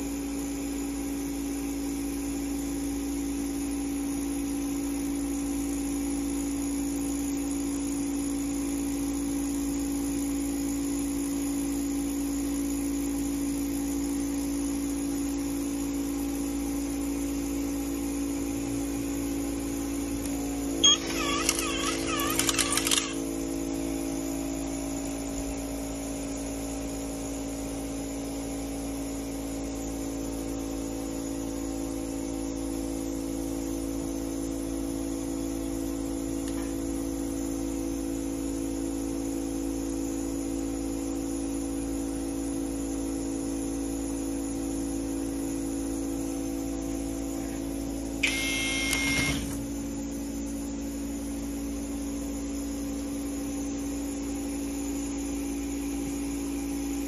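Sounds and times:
steady machine hum: 0.0 - 32.3, 43.5 - 57.0
electric screwdriver whirring: 20.8 - 23.2, 48.2 - 49.7.

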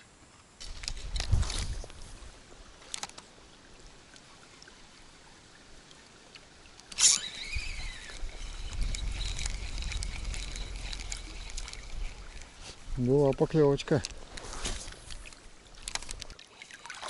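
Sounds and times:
fishing reel click: 6.8 - 12.6
fishing reel whirring: 6.9 - 13.7.

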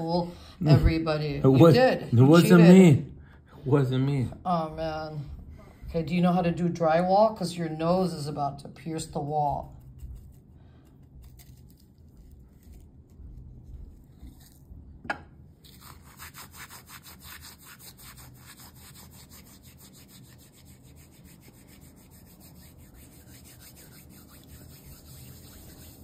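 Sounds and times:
dry herbs rubbed between palms: 15.6 - 26.0.

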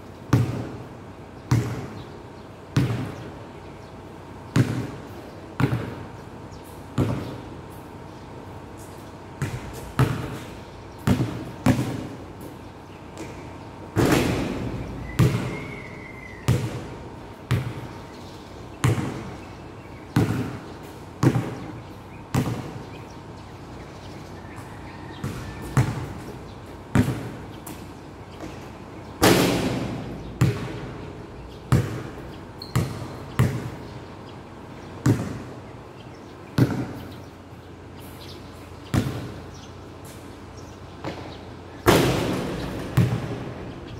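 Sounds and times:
basketball bouncing on hard court: 0.3 - 0.8, 1.5 - 2.0, 2.8 - 3.1, 4.5 - 5.0, 5.6 - 6.0, 7.0 - 7.4, 9.4 - 12.1, 14.0 - 15.6, 16.5 - 17.9, 18.8 - 19.4, 20.1 - 21.7, 22.3 - 22.8, 25.2 - 27.8, 28.4 - 31.0, 31.7 - 33.8, 35.0 - 35.5, 36.6 - 37.1, 38.9 - 39.4, 41.0 - 43.6.

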